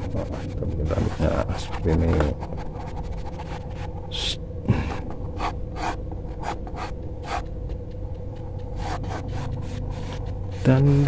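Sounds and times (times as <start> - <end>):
pencil scratching on paper: 0.0 - 3.9, 5.4 - 7.5, 8.6 - 11.0.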